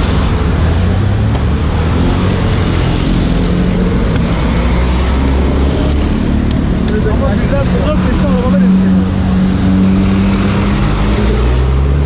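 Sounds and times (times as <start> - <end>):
road noise: 0.0 - 12.0
traffic engines rumbling: 0.0 - 12.0.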